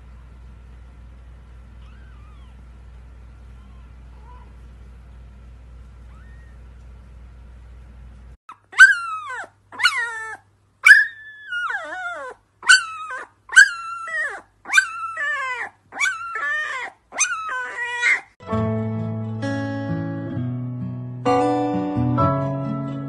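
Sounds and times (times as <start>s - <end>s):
puppy howling: 1.8s - 2.7s, 3.4s - 4.6s, 6.0s - 6.6s, 8.5s - 18.4s
acoustic guitar music: 18.4s - 23.0s.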